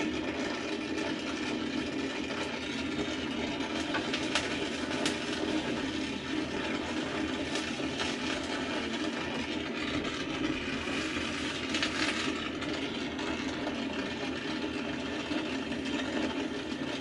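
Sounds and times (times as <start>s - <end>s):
brazing torch flame hissing: 2.9s - 13.3s.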